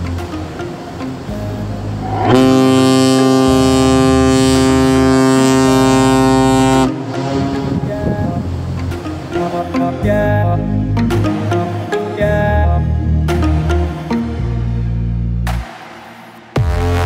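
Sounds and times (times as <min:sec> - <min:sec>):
background music: 0:00.0 - 0:17.0
ship's whistle long blast: 0:02.0 - 0:07.8.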